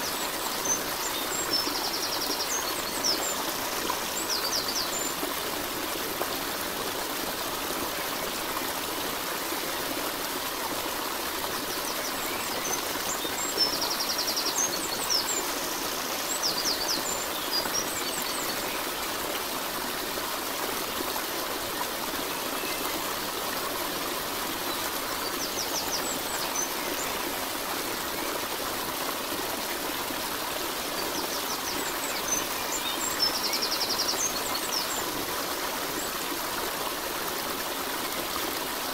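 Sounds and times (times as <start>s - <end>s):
stream running water: 0.0s - 38.9s.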